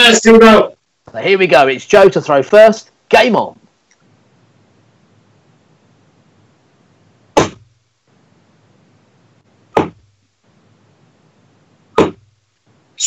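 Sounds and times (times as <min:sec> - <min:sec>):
darts thudding into dartboard: 0:07.4 - 0:07.7, 0:09.7 - 0:10.1, 0:12.0 - 0:12.3.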